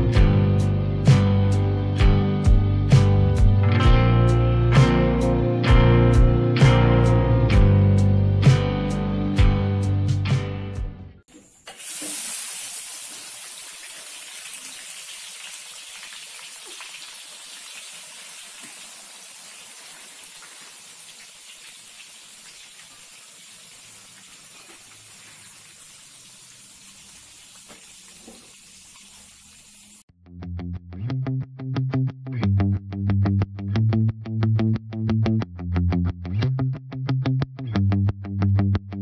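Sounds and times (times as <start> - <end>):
music: 0.0 - 11.2, 30.2 - 39.0
peanuts sizzling in hot oil: 11.7 - 30.1.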